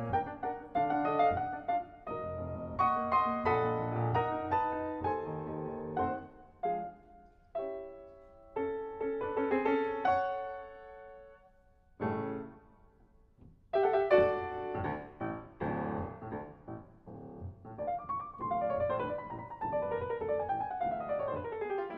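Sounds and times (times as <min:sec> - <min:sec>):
solo piano music: 0:00.0 - 0:21.9.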